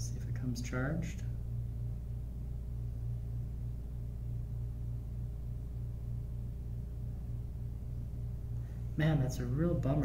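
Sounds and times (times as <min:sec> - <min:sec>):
low pulsing hum: 0:00.0 - 0:10.0.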